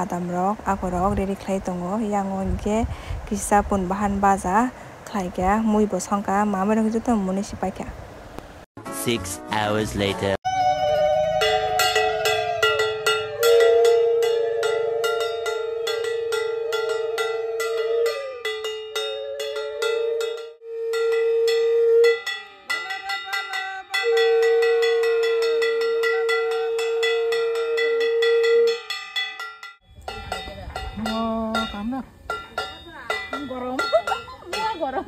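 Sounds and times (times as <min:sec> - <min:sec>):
wind instrument long note: 0:08.9 - 0:28.8.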